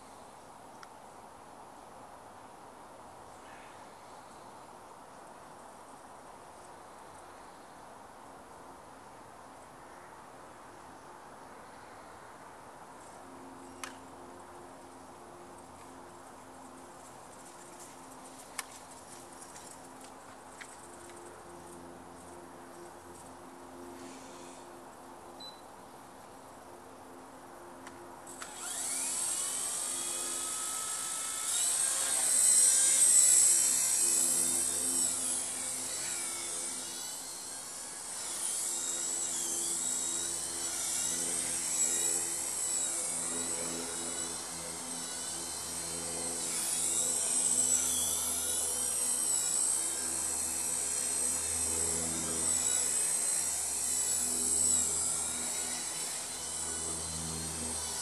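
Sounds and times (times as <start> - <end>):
toy helicopter motor whining: 23.8 - 24.8, 28.3 - 58.0.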